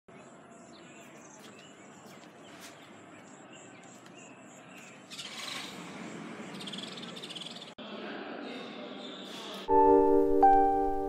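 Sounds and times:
birds calling: 0.1 - 7.8.

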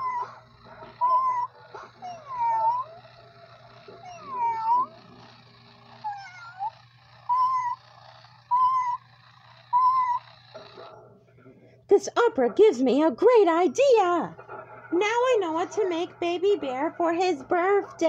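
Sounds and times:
electronic toy cat meows: 0.0 - 10.8
steady low hum: 0.0 - 18.0.

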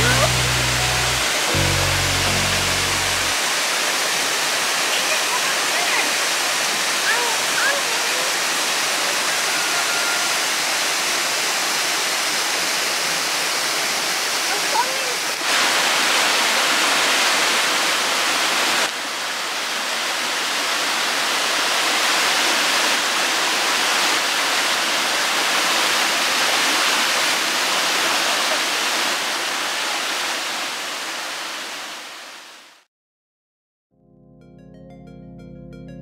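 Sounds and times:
waterfall pouring over rocks: 0.0 - 32.9.

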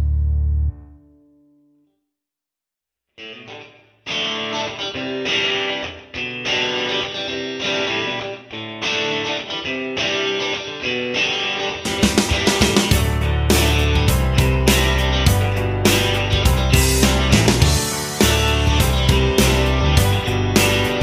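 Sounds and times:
guitar playing short phrases: 3.2 - 21.0
beat with deep bass: 11.9 - 21.0.

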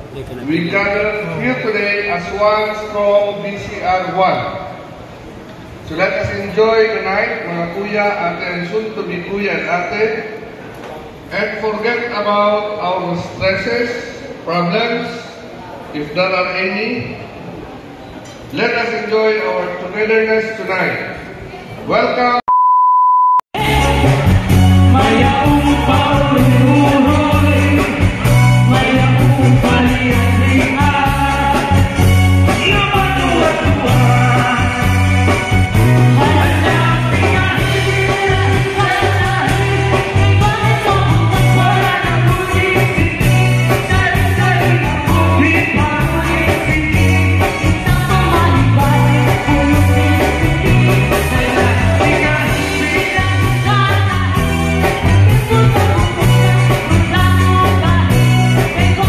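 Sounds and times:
pop-rock song over loudspeakers: 23.6 - 59.0.

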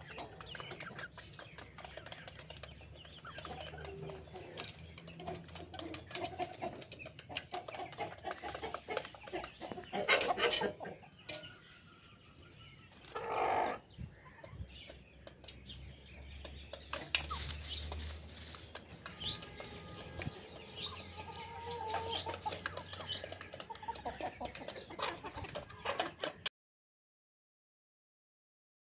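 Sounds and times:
hens and roosters clucking: 0.0 - 26.5
drawn-out chicken call: 3.2 - 11.6, 12.8 - 14.6, 18.4 - 26.5.

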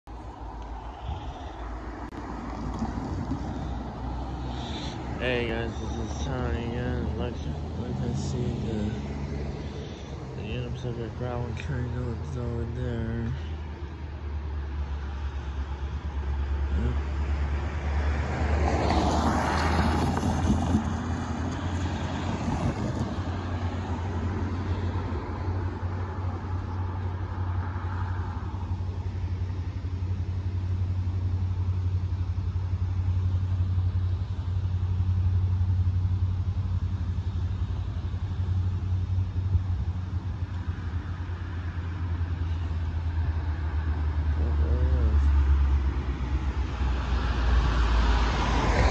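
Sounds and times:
road vehicle passing: 0.1 - 48.9
diesel locomotive idling: 3.0 - 16.9, 28.5 - 43.6.

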